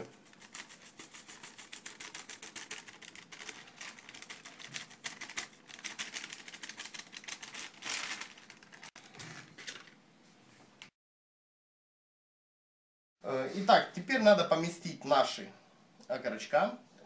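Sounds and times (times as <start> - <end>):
plastic packet crinkling: 0.3 - 10.0
herbs crumbling: 1.5 - 9.9.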